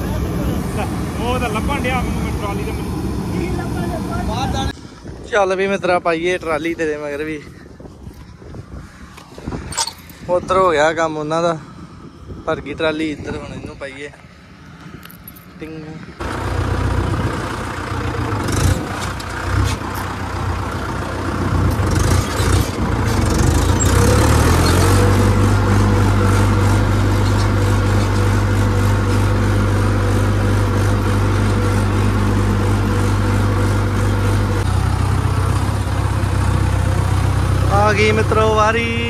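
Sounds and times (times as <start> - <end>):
heavy diesel engine running: 0.0 - 4.8, 15.4 - 39.0.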